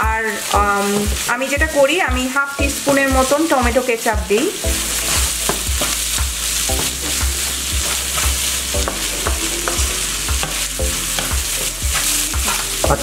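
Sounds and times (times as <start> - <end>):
wooden spatula scraping a pan: 0.0 - 12.8
meat and onions sizzling: 0.0 - 13.0.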